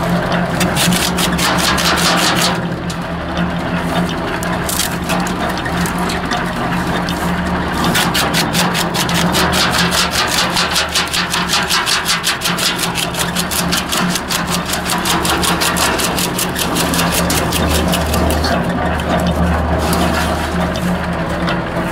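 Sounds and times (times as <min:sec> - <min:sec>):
tractor engine hum: 0:00.0 - 0:21.9
wood chipper chipping branches: 0:00.0 - 0:21.9.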